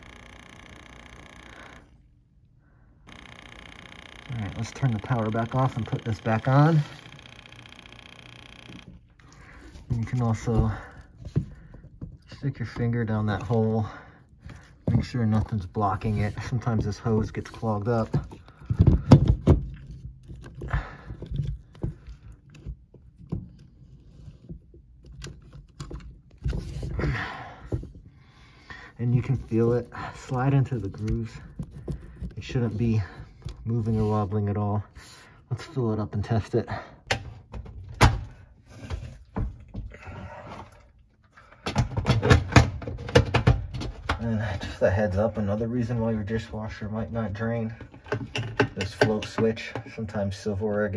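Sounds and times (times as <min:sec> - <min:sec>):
plastic scraping: 0:03.1 - 0:13.7, 0:29.0 - 0:34.5.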